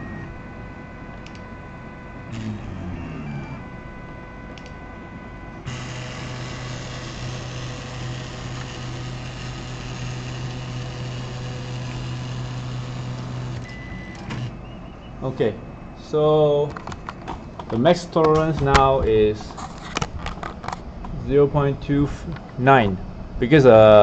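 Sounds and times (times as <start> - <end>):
mechanical hum with hiss: 0.0 - 24.0
stepper motors whirring: 2.2 - 3.8, 5.7 - 15.0.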